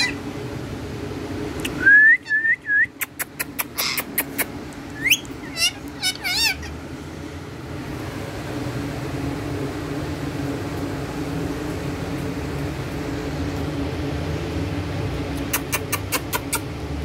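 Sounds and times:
parakeet warbling whistle: 0:00.0 - 0:00.2, 0:05.0 - 0:06.7
steady low hum: 0:00.0 - 0:17.0.

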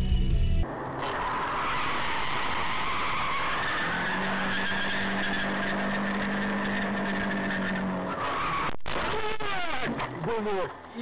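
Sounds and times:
steady droning tone: 0:00.0 - 0:00.7
car road and engine noise: 0:00.0 - 0:11.0.

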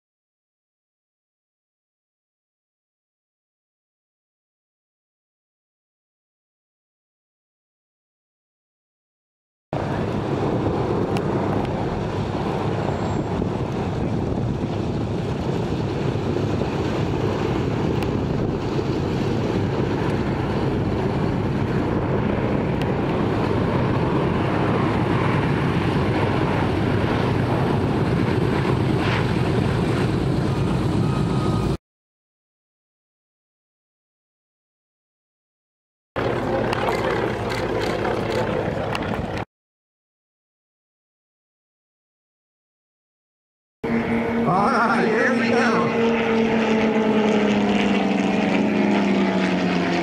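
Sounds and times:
propeller plane droning overhead: 0:09.8 - 0:31.8, 0:36.2 - 0:39.5, 0:43.8 - 0:50.0.

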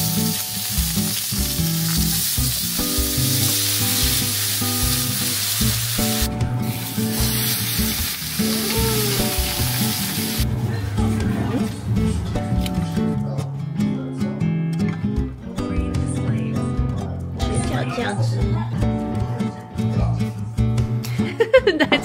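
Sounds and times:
dumplings sizzling in pan: 0:00.0 - 0:10.5
background music: 0:00.0 - 0:22.0.

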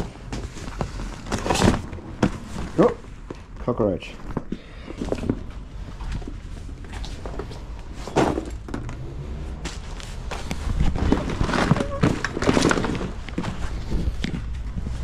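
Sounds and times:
plastic boat hull crinkling: 0:09.7 - 0:15.0.

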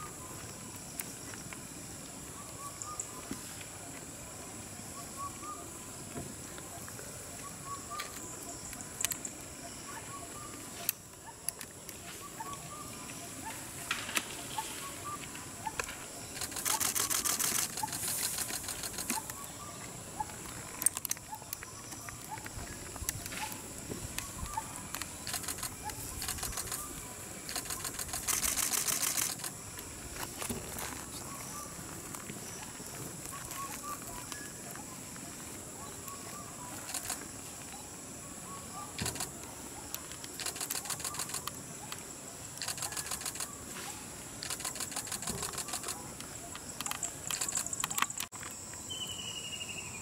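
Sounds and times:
high insect drone: 0:00.0 - 0:50.0
sharp clicks: 0:15.8 - 0:19.4, 0:24.9 - 0:26.9, 0:27.5 - 0:29.6, 0:36.8 - 0:37.2, 0:39.0 - 0:39.3, 0:40.0 - 0:42.0, 0:42.6 - 0:43.5, 0:44.4 - 0:48.5.

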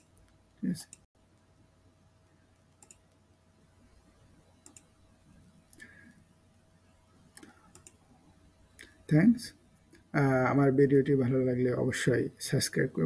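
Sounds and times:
faint room hiss: 0:00.0 - 0:13.0
computer mouse clicking: 0:02.7 - 0:03.2, 0:04.6 - 0:04.9, 0:07.3 - 0:08.0.

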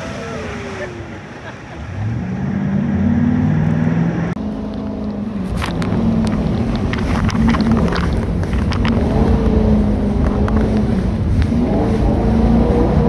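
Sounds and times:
jet boat engine revving: 0:00.0 - 0:13.0
rushing water: 0:00.0 - 0:13.0
spray splashing against hull: 0:05.2 - 0:13.0.

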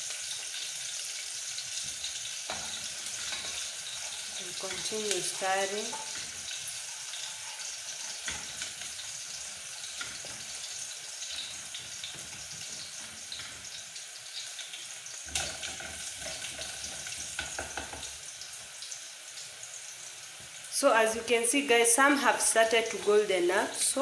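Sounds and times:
onions sizzling in oil: 0:00.0 - 0:24.0
wooden spoon scraping a pot: 0:02.5 - 0:13.5.

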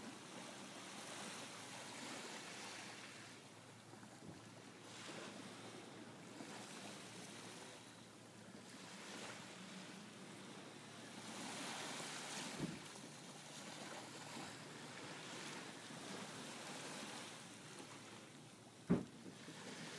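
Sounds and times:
small waves washing onto sand: 0:00.0 - 0:19.9
soft thump: 0:12.5 - 0:12.9, 0:18.9 - 0:19.1.

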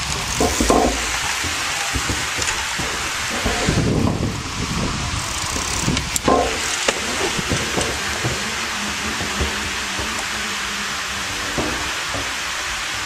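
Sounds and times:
bicycle tyres rolling on concrete: 0:00.0 - 0:13.0
wind rushing over microphone: 0:00.0 - 0:13.0
sharp knocks: 0:00.3 - 0:04.3, 0:05.5 - 0:10.5.

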